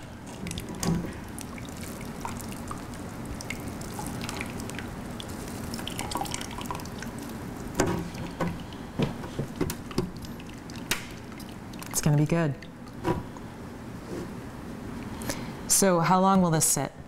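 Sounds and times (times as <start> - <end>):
liquid dripping into container: 0.3 - 8.8, 9.6 - 12.0.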